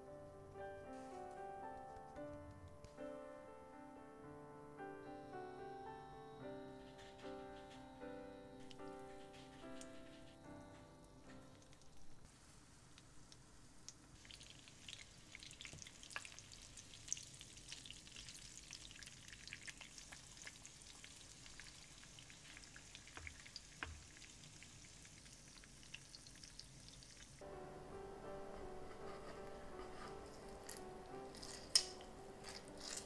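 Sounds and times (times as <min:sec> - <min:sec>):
fish sizzling in pan: 0:12.3 - 0:27.4.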